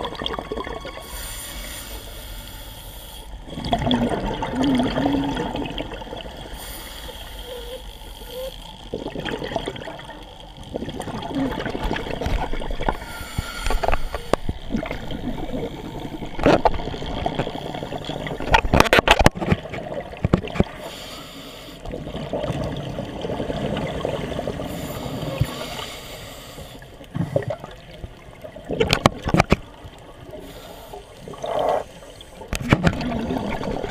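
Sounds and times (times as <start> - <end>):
bubbles gurgling: 0.0 - 1.0, 3.4 - 6.6, 8.8 - 13.0, 13.8 - 20.8, 21.8 - 25.5, 27.1 - 30.3, 31.2 - 33.9
regulator breathing hiss: 1.0 - 3.4, 6.5 - 8.6, 13.0 - 14.5, 20.8 - 21.8, 24.7 - 27.0, 30.4 - 32.5.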